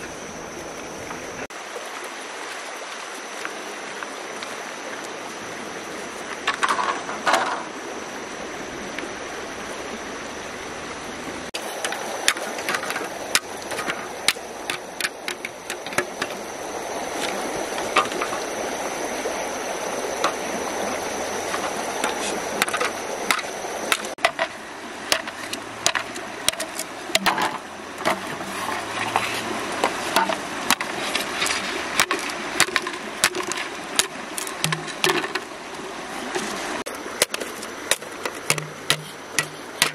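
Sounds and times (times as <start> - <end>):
stream rushing: 0.0 - 39.9
machete chopping bamboo: 37.2 - 39.9.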